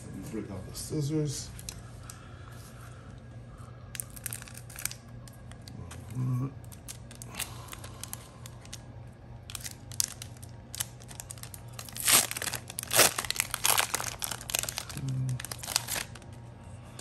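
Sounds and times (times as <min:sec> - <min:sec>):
foil wrapper crinkling and tearing: 0:03.9 - 0:16.4.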